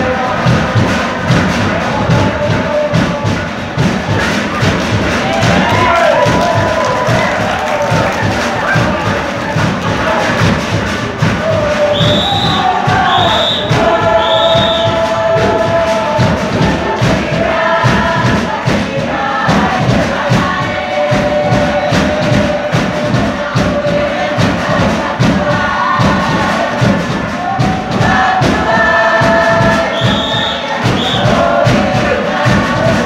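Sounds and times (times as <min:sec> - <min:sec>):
fast drum beat: 0:00.0 - 0:33.0
group singing in chorus: 0:00.0 - 0:33.0.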